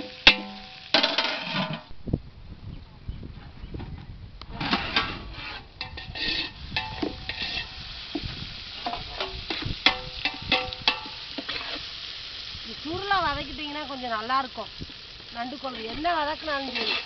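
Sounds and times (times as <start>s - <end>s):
food sizzling in oil: 0.0s - 1.9s, 4.7s - 17.0s
ladle scraping a metal pot: 0.0s - 1.9s, 4.5s - 12.0s, 15.6s - 17.0s.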